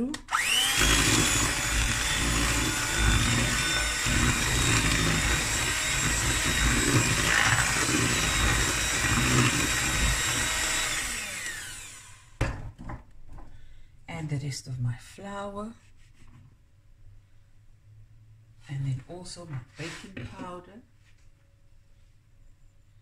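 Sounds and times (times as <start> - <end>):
beaters working through thick batter: 0.3 - 12.1
electric hand mixer running: 0.3 - 12.4.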